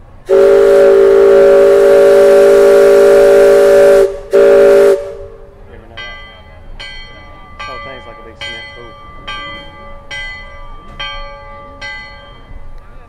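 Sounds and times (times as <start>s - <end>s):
steam whistle blowing: 0.2s - 5.5s.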